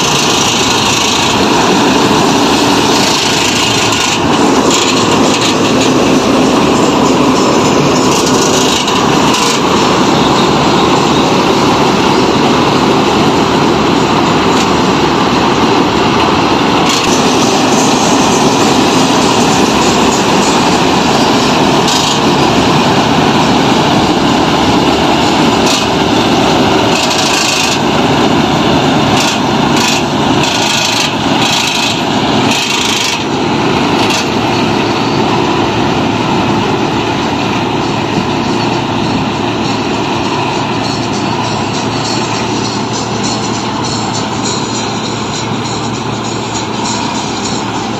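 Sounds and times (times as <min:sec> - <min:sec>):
combine harvester running: 0:00.0 - 0:47.9
short rattles and clicks: 0:29.1 - 0:33.3.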